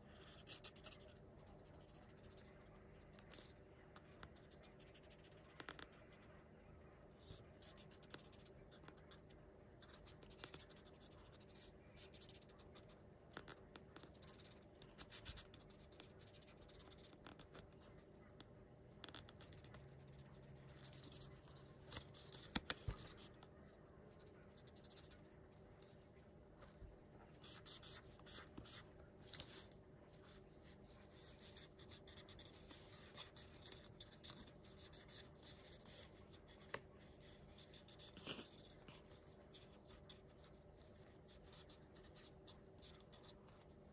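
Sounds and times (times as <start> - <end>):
marker scratching on paper: 0.0 - 6.5, 7.2 - 43.9.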